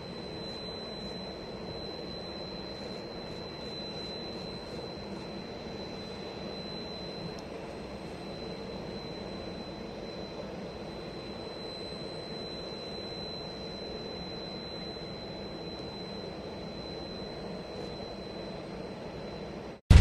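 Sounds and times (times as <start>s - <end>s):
jet turbine engines running: 0.0s - 20.0s.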